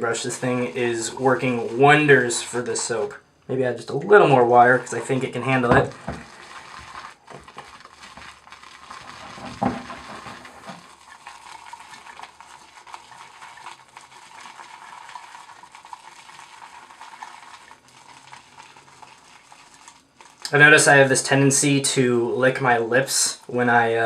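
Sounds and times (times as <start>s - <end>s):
shaving brush swishing lather: 0.0s - 2.6s.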